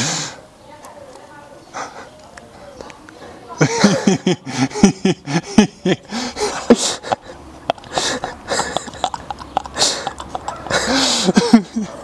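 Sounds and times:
men laughing under their breath: 3.6s - 12.0s.

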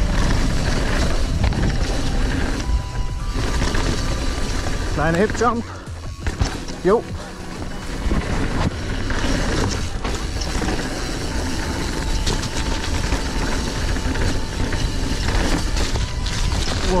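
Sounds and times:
wind rush on microphone: 0.0s - 5.0s
tyres on loose dirt: 0.0s - 17.0s
bike knocking over bumps: 0.1s - 10.8s.

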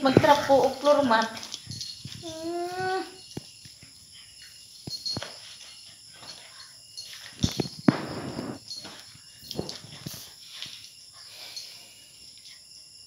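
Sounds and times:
small dogs play-fighting: 0.0s - 7.8s, 8.4s - 11.6s
insects chirping: 0.0s - 13.0s.

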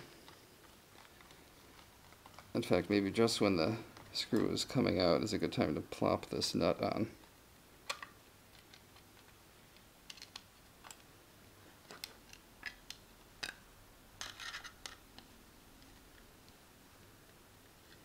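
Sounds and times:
plastic parts clicking and scraping: 0.1s - 2.8s, 7.9s - 11.1s, 14.2s - 16.6s.

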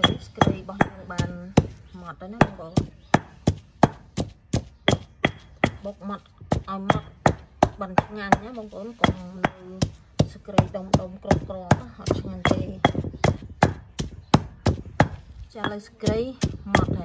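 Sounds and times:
stone pestle pounding in mortar: 0.0s - 17.0s.

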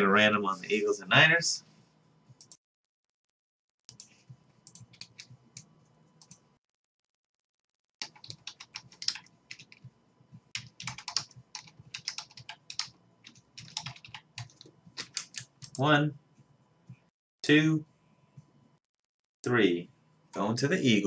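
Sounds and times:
keyboard typing: 3.8s - 6.5s, 7.8s - 9.9s, 10.5s - 15.8s.

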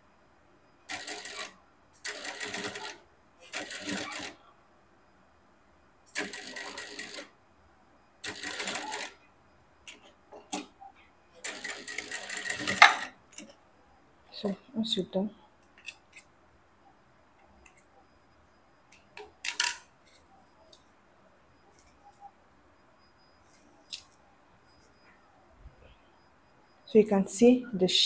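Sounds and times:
sewing machine stitching: 0.9s - 4.4s, 6.1s - 7.3s, 8.2s - 9.2s, 11.4s - 13.1s.

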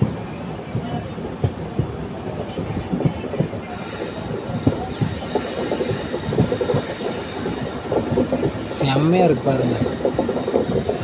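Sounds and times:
train wheels knocking over rails: 2.9s - 11.0s
high-pitched wheel squeal: 3.7s - 11.0s.

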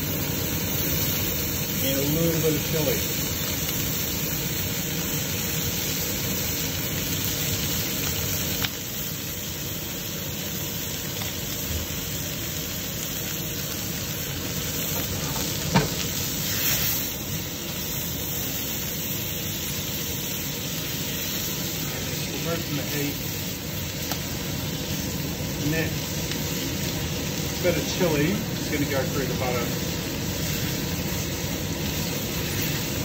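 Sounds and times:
meat sizzling in frying pan: 0.0s - 33.0s.

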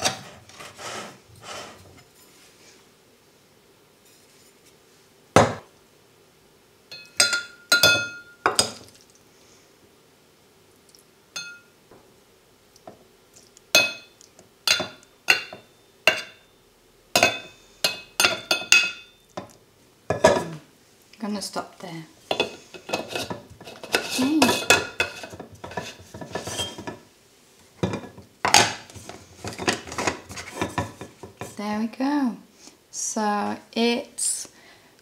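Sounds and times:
metal spoon clinking on jar: 11.4s - 11.7s.

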